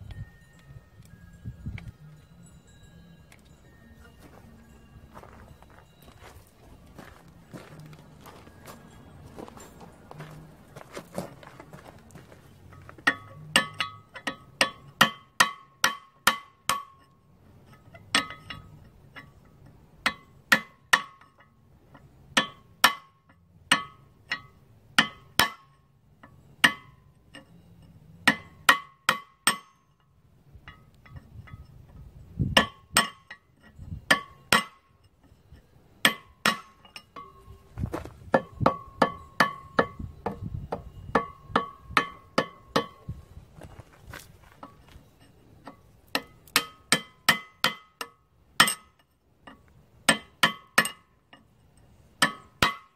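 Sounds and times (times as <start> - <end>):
hammer striking steel punch: 36.0 - 37.6, 50.1 - 51.0, 52.2 - 52.9.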